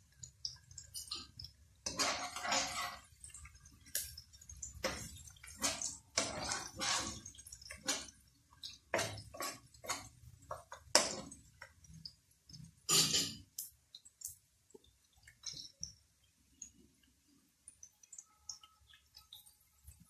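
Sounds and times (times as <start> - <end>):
food frying in oil: 0.0 - 20.0
metal spatula scraping a wok: 1.8 - 3.1, 4.8 - 8.2, 8.9 - 11.3.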